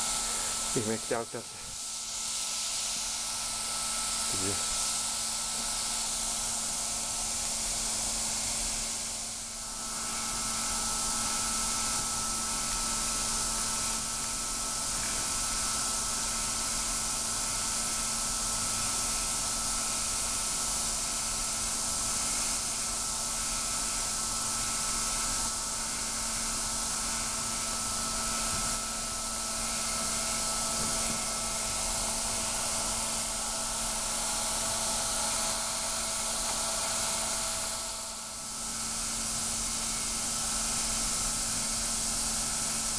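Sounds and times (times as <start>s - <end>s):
gas hissing: 0.0s - 8.0s, 22.4s - 42.9s.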